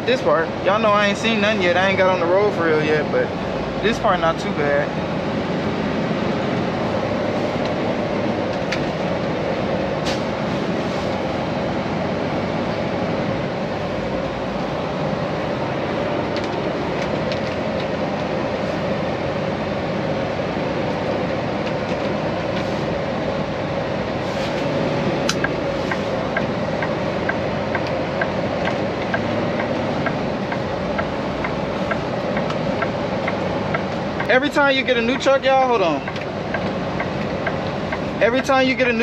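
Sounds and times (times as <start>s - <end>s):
truck engine and road drone: 0.0s - 39.0s
turn signal ticking: 25.2s - 39.0s.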